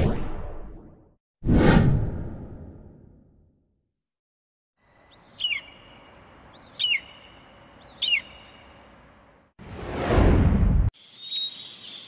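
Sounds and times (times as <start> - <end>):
bird calling: 4.8 - 8.8.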